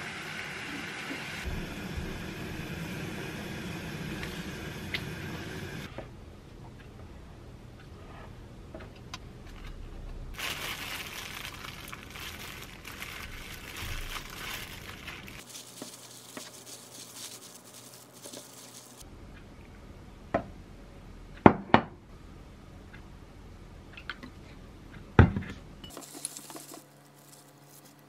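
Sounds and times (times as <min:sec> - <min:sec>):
plastic crinkling and rustling: 0:10.4 - 0:19.0, 0:25.9 - 0:28.0.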